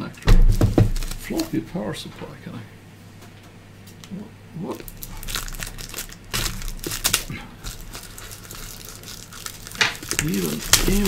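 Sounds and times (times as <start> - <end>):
plastic shrink-wrap crinkling: 0.4 - 1.6, 4.8 - 11.0.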